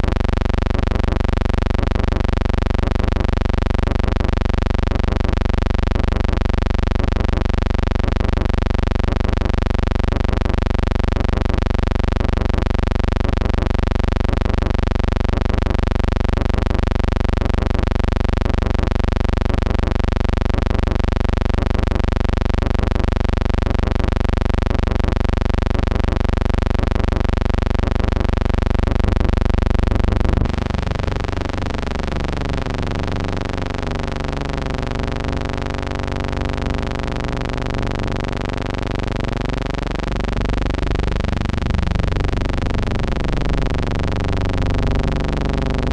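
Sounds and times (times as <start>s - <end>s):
loud buzzing drone: 29.3s - 45.9s.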